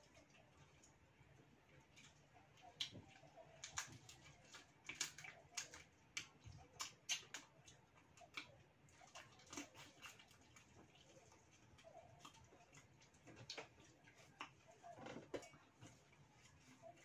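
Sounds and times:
chewing: 0.0 - 17.0
shrimp shells cracking: 3.6 - 7.5.

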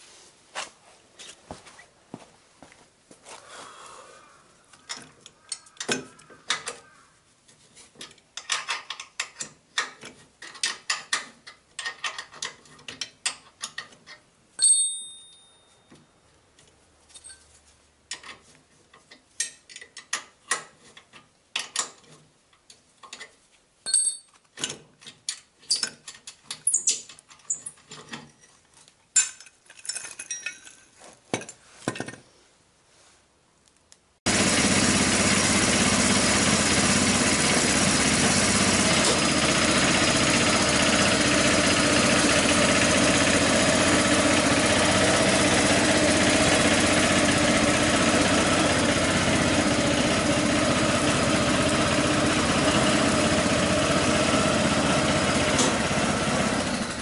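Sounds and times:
spanner and bolts clinking: 8.0 - 16.0, 23.0 - 32.2
metal part ringing: 14.6 - 16.0, 23.8 - 24.4, 29.2 - 30.8.

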